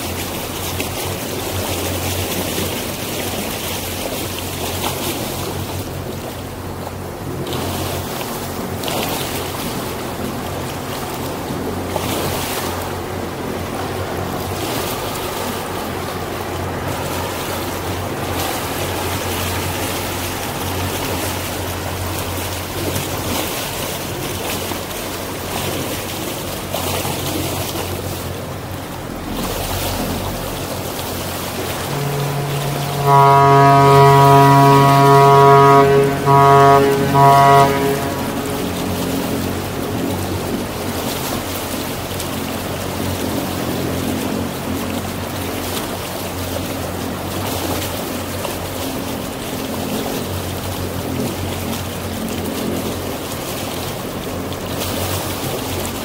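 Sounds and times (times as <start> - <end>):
boat motor humming: 0.0 - 56.0
wind and water rushing: 0.0 - 56.0
ship's horn blast: 11.2 - 53.0.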